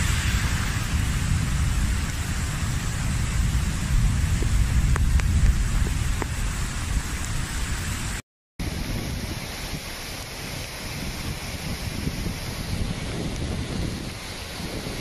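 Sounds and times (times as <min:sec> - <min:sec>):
deep rumble: 0:00.0 - 0:08.2
heavy rain: 0:00.0 - 0:15.0.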